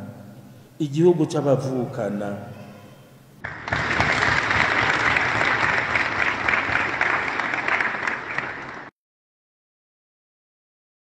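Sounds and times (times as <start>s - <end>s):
congregation applauding: 3.4s - 8.9s.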